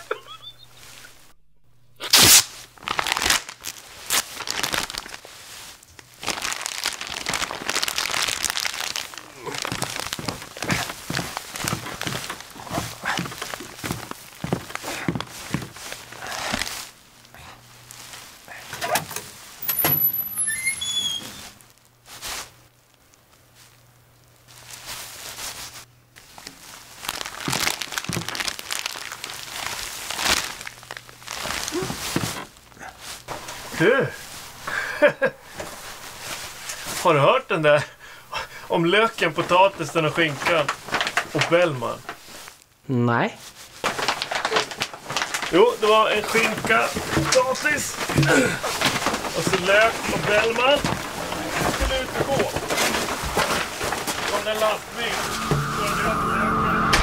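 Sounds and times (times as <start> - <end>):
plastic crinkling and rustling: 2.1 - 42.8, 43.4 - 56.0.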